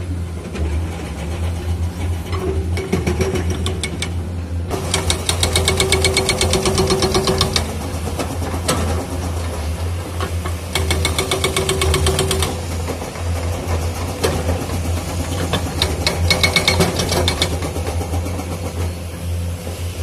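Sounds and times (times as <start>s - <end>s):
diesel engine running: 0.0s - 20.0s
hydraulic breaker hammering rock: 2.7s - 9.2s, 10.7s - 18.7s.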